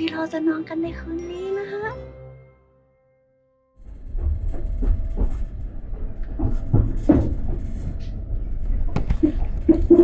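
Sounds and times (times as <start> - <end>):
knocks and rattles: 3.8 - 10.0
train low rumble: 3.8 - 10.0.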